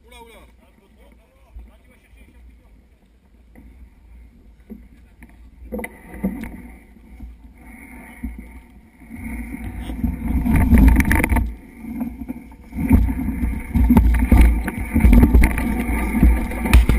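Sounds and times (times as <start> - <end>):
wind rumble on microphone: 3.6 - 16.9
bike rattling and knocking: 12.8 - 16.9.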